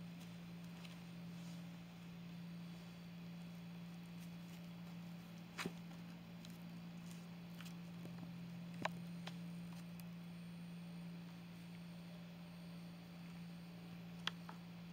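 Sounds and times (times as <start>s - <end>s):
low hum: 0.0s - 14.9s.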